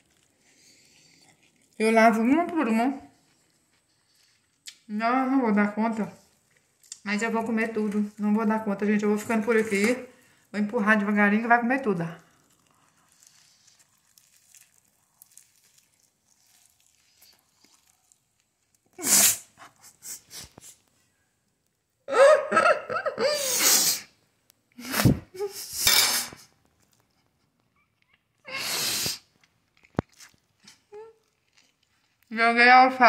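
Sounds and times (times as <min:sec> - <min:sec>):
woman spitting: 0:18.9 - 0:19.6, 0:23.4 - 0:24.2, 0:28.5 - 0:29.3.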